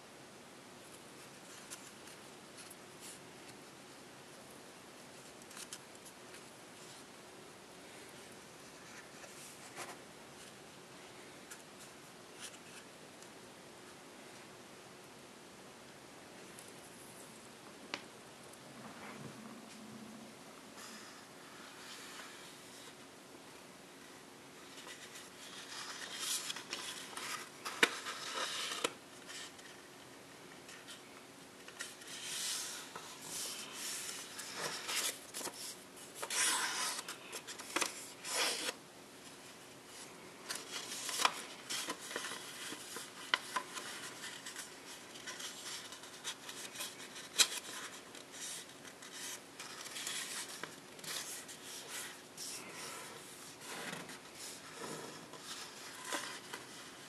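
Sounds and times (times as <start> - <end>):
paper rustling and scraping: 24.7 - 29.9, 31.6 - 38.8, 39.9 - 57.0.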